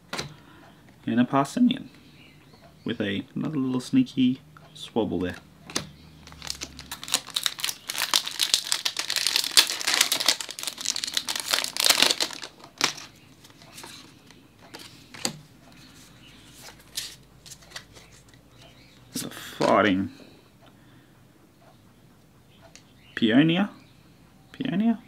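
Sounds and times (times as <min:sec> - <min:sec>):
foil wrapper crinkling and tearing: 0:06.2 - 0:13.1.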